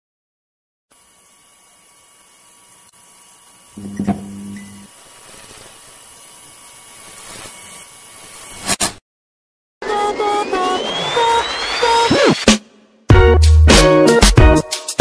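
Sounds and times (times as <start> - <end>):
neon buzz: 0.9 - 8.7
electrical hum: 1.0 - 8.6
hiss: 4.8 - 8.8.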